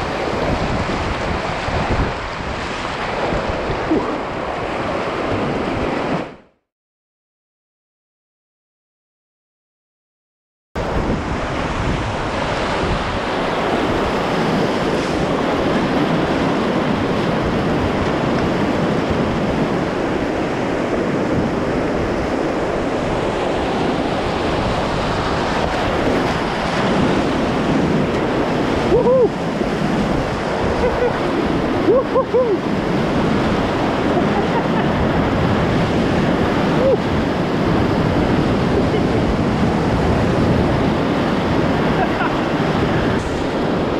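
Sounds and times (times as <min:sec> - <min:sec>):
whitewater rapids rushing: 0:10.8 - 0:43.9.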